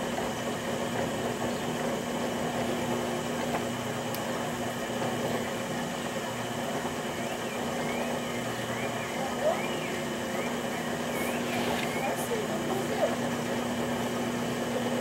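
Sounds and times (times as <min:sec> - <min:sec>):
potter's wheel motor hum: 0:00.0 - 0:15.0.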